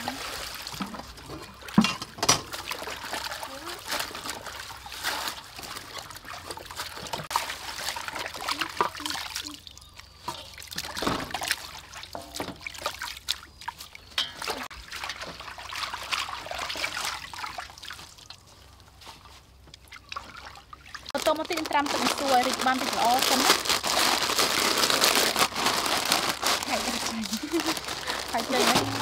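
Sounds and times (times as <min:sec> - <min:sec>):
water splashing in a bowl: 0:00.0 - 0:18.6.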